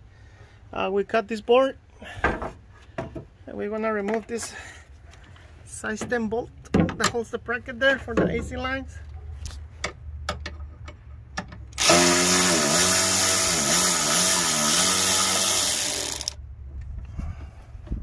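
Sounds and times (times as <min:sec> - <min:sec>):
power tool motor running: 0:11.8 - 0:16.4.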